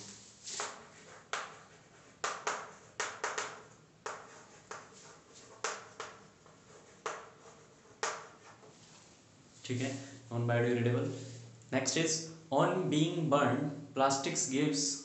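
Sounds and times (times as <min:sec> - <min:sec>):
chalk tapping on chalkboard: 0:00.1 - 0:08.8.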